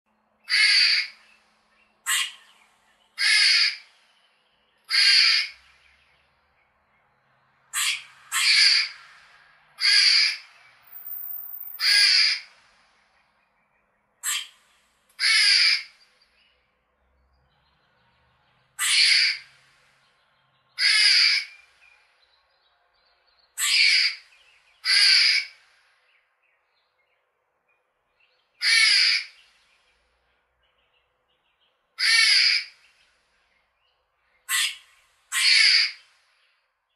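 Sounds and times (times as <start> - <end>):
squirrel calling: 0.4 - 1.3, 2.1 - 2.6, 3.2 - 3.9, 4.8 - 5.6, 7.7 - 9.0, 9.8 - 12.5, 14.2 - 14.6, 15.2 - 16.0, 18.8 - 19.5, 20.8 - 21.6, 23.6 - 25.6, 28.6 - 29.4, 32.0 - 32.8, 34.5 - 36.0.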